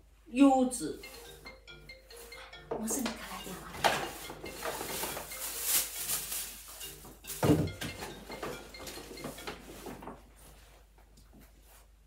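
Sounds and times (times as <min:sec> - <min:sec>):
plastic bag rustling: 0:02.1 - 0:10.9.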